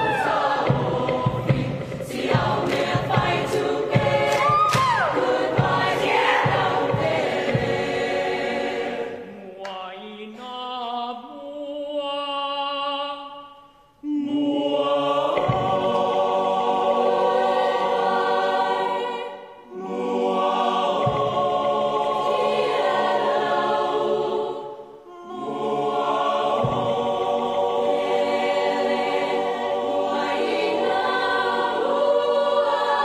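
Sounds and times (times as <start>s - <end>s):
sharp percussive beats: 0.0s - 9.1s, 15.2s - 17.7s, 20.8s - 23.5s
choir chanting rhythmically: 0.0s - 33.0s
choir singing held chords: 0.0s - 33.0s.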